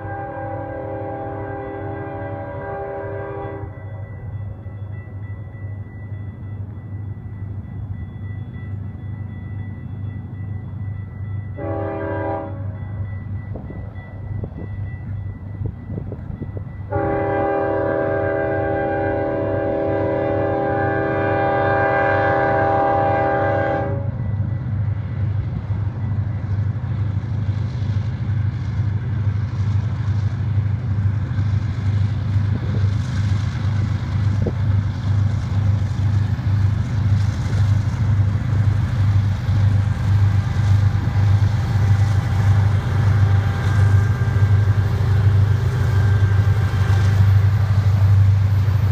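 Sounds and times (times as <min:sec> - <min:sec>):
locomotive air horn blast: 0:00.0 - 0:03.7, 0:11.6 - 0:12.8, 0:16.9 - 0:24.1.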